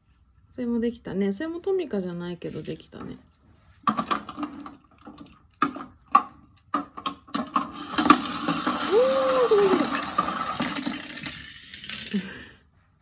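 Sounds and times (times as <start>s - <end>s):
toy mechanical whirring rattle: 7.6s - 12.6s.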